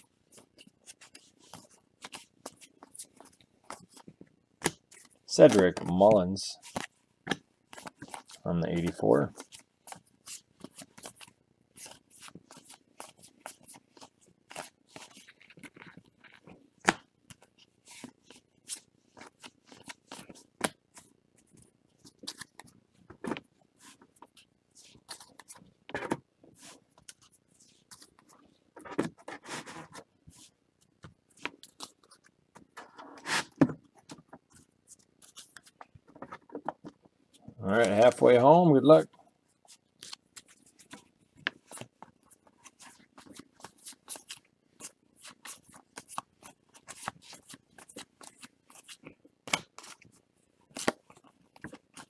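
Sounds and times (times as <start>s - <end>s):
rough rustling of cards: 0.1s - 36.7s, 39.6s - 52.0s
cards clicking and scraping: 50.7s - 52.0s.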